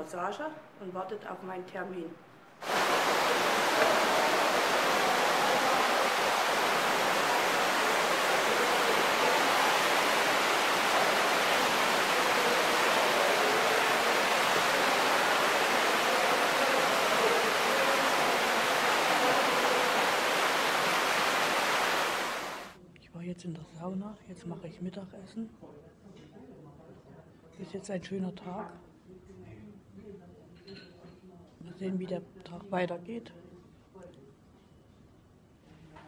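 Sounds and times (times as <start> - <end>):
fountain water splashing into pool: 2.6 - 22.8.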